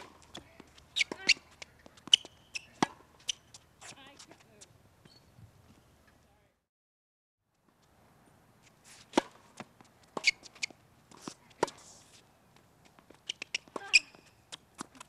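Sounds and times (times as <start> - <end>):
tennis balls hit and bouncing: 0.0 - 5.1, 8.6 - 15.0.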